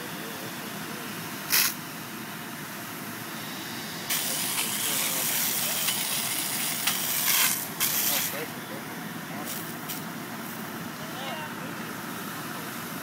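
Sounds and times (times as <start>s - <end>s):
water rushing from fire hose: 3.6s - 8.6s.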